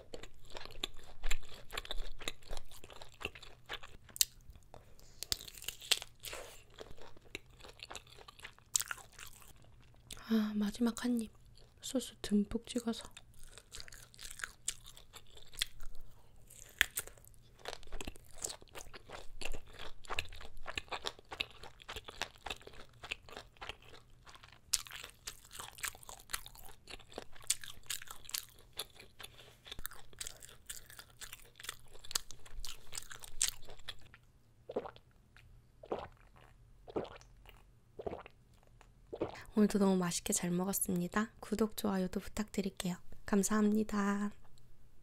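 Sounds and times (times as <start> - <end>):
crunchy chewing: 0.0 - 10.2, 13.0 - 39.4
swallowing a drink: 34.7 - 35.0, 35.8 - 37.3, 38.0 - 38.4, 39.1 - 39.5.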